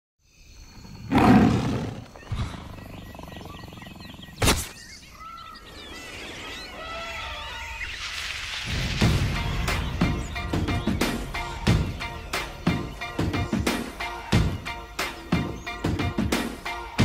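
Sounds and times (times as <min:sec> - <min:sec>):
low roar-like animal call: 0:00.9 - 0:04.4
sharp crack: 0:04.4 - 0:04.8.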